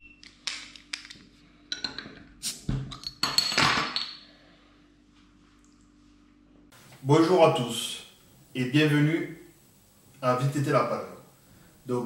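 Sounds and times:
bottle opening hiss: 2.4s - 2.7s.

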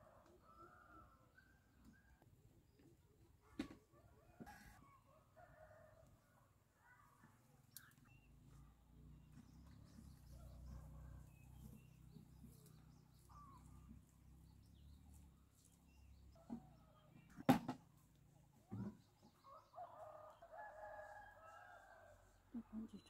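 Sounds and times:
faint bird chirps: 22.5s - 23.0s.

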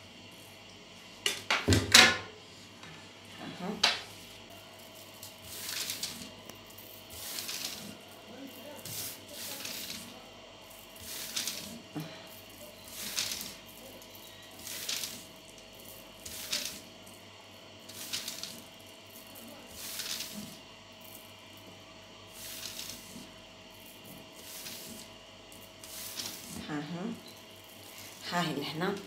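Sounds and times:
glitter pattering onto paper: 4.5s - 17.2s, 17.8s - 21.2s, 22.3s - 29.0s.

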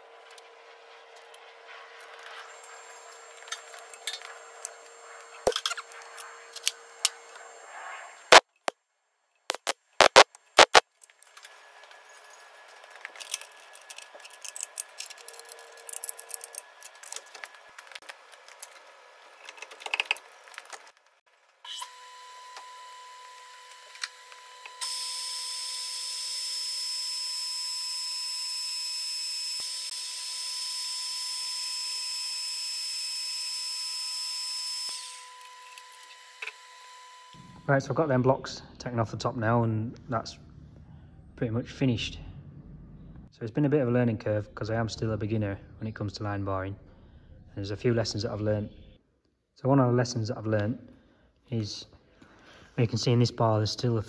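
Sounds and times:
drill bit cutting steel: 21.7s - 37.6s
drilling machine motor: 21.7s - 37.7s.

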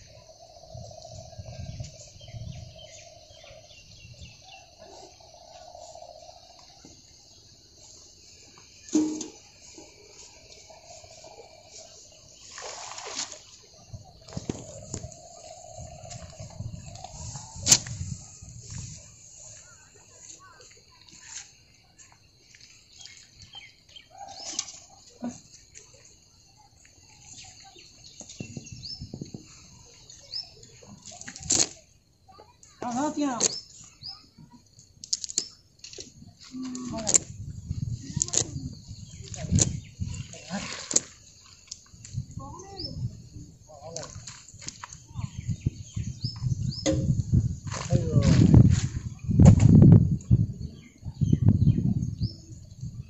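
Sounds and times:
birds chirping: 0.0s - 48.2s
insects buzzing: 0.0s - 50.4s
wet net handling noises: 12.4s - 13.6s, 39.2s - 42.2s.

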